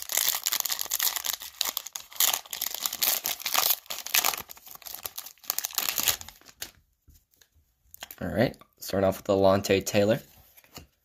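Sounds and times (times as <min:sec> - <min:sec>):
foil wrapper tearing and crinkling: 0:00.0 - 0:06.7.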